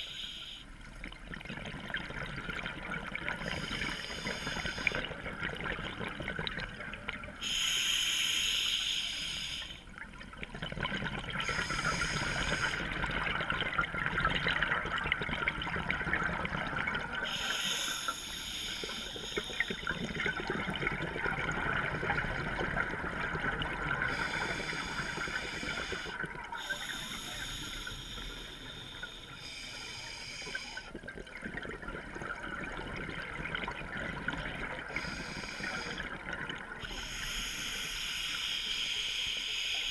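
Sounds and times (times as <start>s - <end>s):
hissing regulator inhalations: 0.0s - 0.7s, 3.4s - 5.1s, 7.4s - 9.8s, 11.4s - 13.0s, 17.2s - 20.5s, 24.1s - 31.0s, 34.9s - 36.1s, 36.8s - 39.9s.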